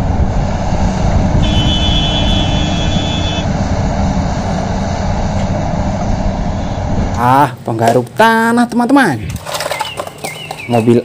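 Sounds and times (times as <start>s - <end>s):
high steady whine: 0.0s - 7.7s
excavator diesel engine under load: 0.0s - 8.2s.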